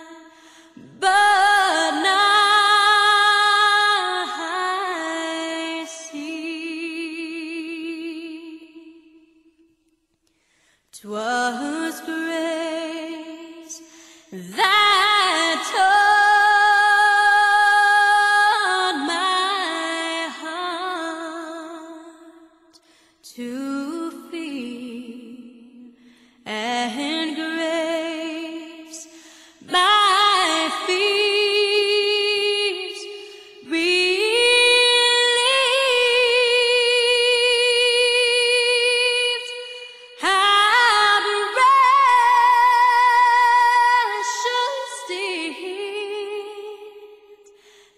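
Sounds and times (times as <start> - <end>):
woman singing unaccompanied: 0.0 - 9.0, 11.0 - 13.8, 26.5 - 47.2.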